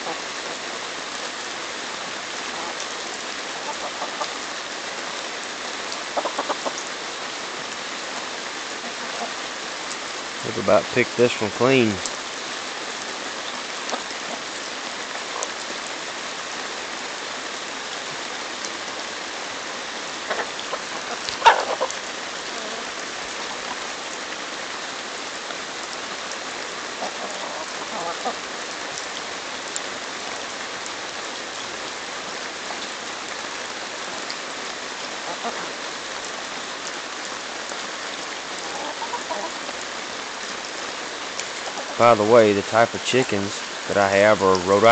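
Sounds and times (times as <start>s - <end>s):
chickens pecking corn: 3.6s - 4.4s, 6.2s - 6.8s, 20.3s - 22.9s, 27.0s - 28.4s, 35.2s - 35.7s, 38.6s - 39.6s, 41.6s - 44.7s
chicken call: 20.3s - 21.9s.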